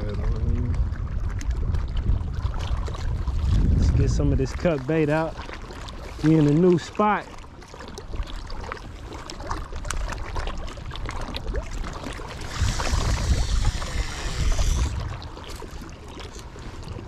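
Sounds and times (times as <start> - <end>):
wind rumble on microphone: 0.0 - 17.0
fishing reel spool whirring: 12.3 - 15.0.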